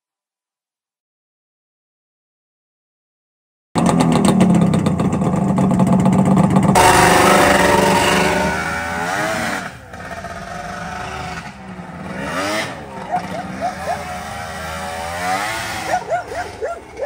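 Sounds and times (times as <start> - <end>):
snowmobile engine idling and revving: 3.8 - 17.0.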